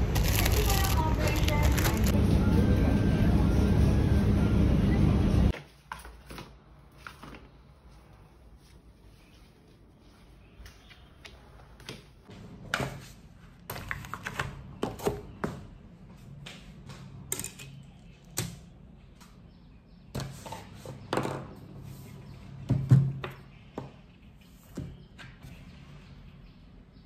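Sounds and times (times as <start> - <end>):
low steady hum: 0.0 - 5.5.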